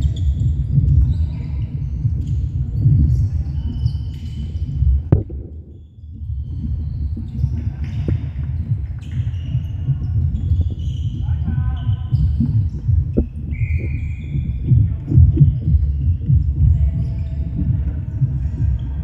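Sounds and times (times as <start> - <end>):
shoes squeaking on wooden court: 0.0 - 14.4
low rumbling din: 4.9 - 5.8.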